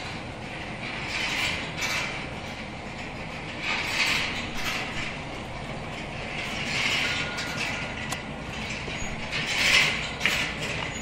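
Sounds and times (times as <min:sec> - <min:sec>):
chain conveyor clattering: 0:00.0 - 0:11.0.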